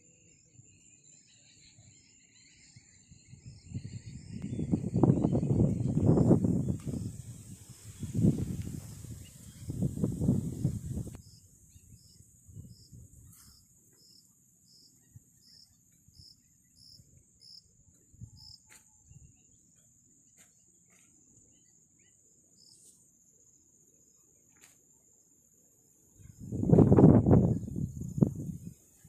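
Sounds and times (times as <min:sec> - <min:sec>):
insect high-pitched trill: 0:00.0 - 0:24.2
insect short high chirps: 0:18.3 - 0:19.6.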